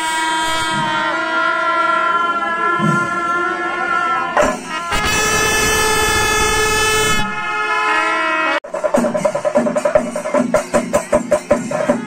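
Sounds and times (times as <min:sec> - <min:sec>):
wind instruments holding notes: 0:00.0 - 0:08.7
loud noisy clash: 0:04.4 - 0:06.0.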